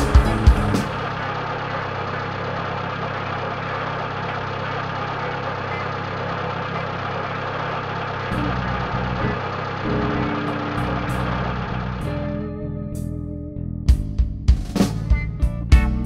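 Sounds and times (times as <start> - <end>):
truck engine idling: 0.0 - 12.4.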